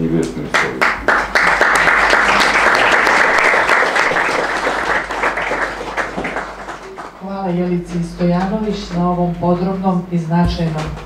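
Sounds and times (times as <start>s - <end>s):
audience applauding: 0.4s - 7.4s.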